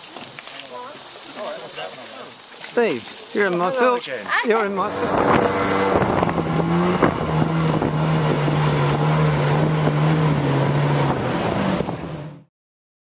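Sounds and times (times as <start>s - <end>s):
water rushing along hull: 0.0s - 12.4s
outboard engine running: 4.6s - 12.5s
wind on microphone: 4.9s - 12.2s.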